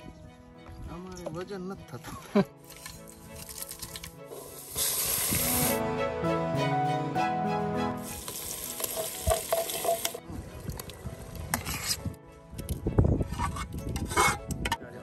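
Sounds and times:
hot oil sizzling: 3.7s - 5.8s, 8.0s - 10.2s.

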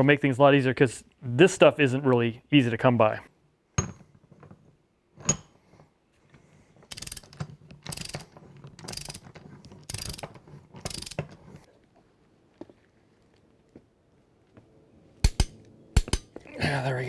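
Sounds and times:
ratchet wrench clicking: 6.9s - 9.2s, 9.9s - 11.2s
sharp click: 15.2s - 16.3s.

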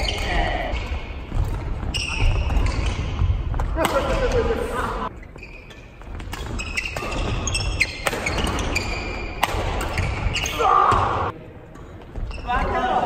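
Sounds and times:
shoe squeaks on wooden floor: 1.8s - 3.4s, 5.1s - 10.6s
racket striking shuttlecock: 9.3s - 10.1s.

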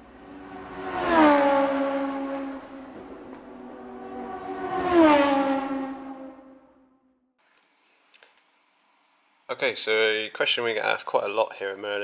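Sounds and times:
vehicle engine passing at speed: 0.0s - 7.3s.

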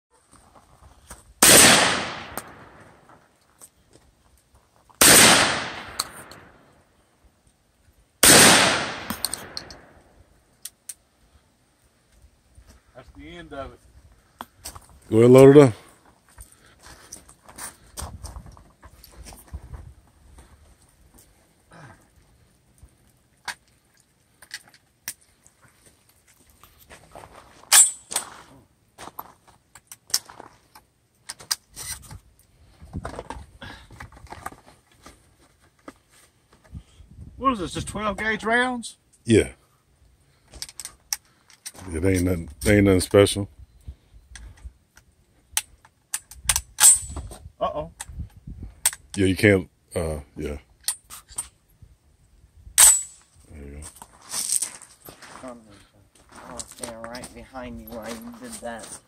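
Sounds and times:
shotgun shots echoing: 1.4s - 3.0s, 5.0s - 6.6s, 8.2s - 10.0s
rustling: 53.1s - 59.0s.

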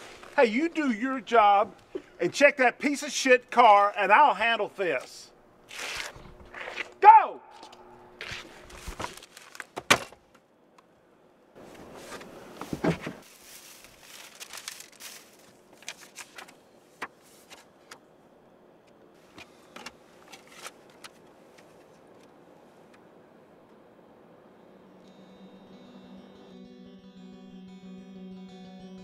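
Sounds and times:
rustling and scraping: 11.6s - 17.8s, 19.2s - 22.2s.

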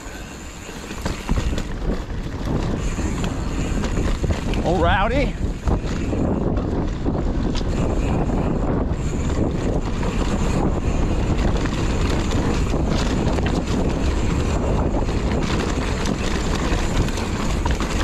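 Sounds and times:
bike rattles and clicks: 0.0s - 18.0s
tyre noise on dirt: 0.0s - 18.0s
wind buffeting microphone: 0.0s - 18.0s.

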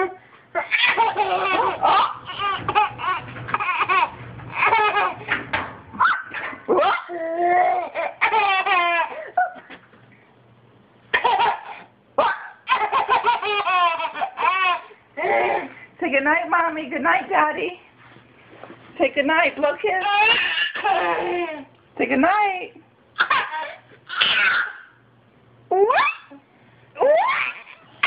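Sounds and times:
toddler laughing: 0.0s - 5.3s, 6.7s - 9.8s, 11.1s - 15.8s, 20.0s - 21.7s, 23.2s - 24.9s.

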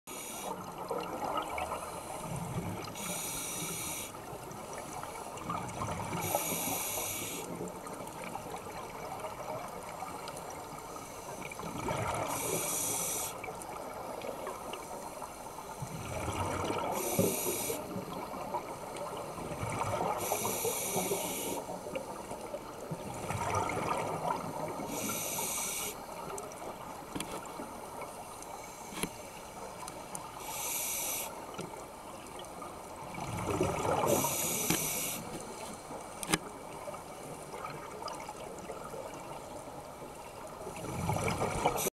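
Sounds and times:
regulator inhale hiss: 0.1s - 0.6s, 1.8s - 4.2s, 6.2s - 7.6s, 12.3s - 13.5s, 16.9s - 18.0s, 20.2s - 21.7s, 24.8s - 26.0s, 30.4s - 31.5s, 34.0s - 35.9s
exhaled bubbles gurgling: 0.6s - 6.9s, 7.7s - 14.8s, 15.8s - 21.7s, 22.8s - 27.0s, 33.0s - 35.6s, 40.6s - 41.9s.

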